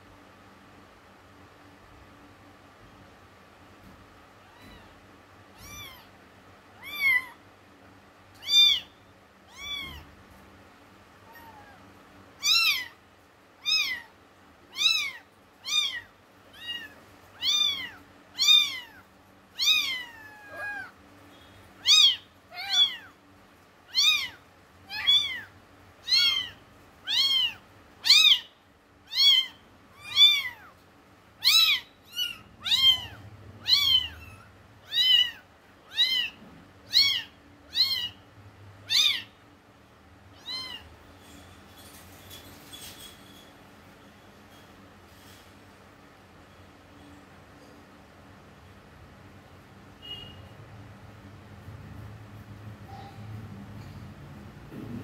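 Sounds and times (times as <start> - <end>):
kitten meowing: 4.4 - 6.1, 6.8 - 7.4, 8.4 - 10.1, 11.2 - 11.8, 12.4 - 13.0, 13.6 - 14.1, 14.7 - 19.0, 19.6 - 21.0, 21.8 - 23.2, 23.9 - 28.5, 29.1 - 30.8, 31.4 - 38.2, 38.9 - 39.3, 40.4 - 40.8.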